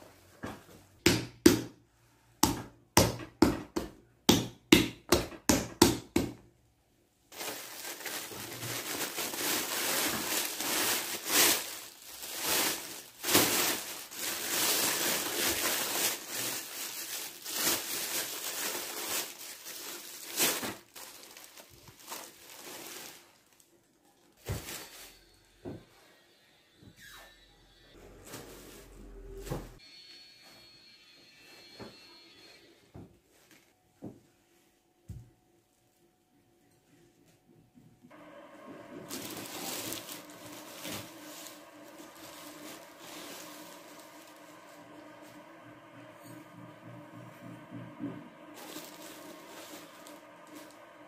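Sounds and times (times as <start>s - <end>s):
dough slapping in plastic bowl: 2.4s - 6.4s
plastic bag crinkling: 7.3s - 25.2s, 38.9s - 45.5s, 48.4s - 51.0s.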